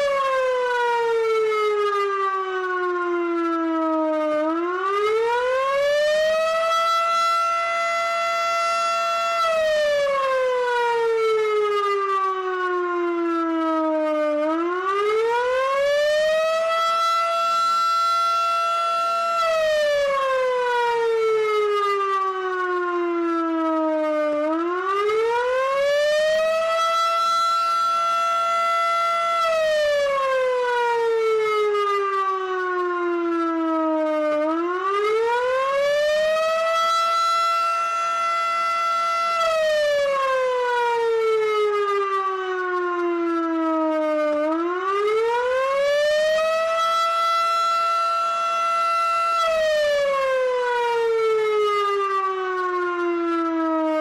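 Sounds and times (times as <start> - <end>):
fire siren wailing: 0.0 - 54.0.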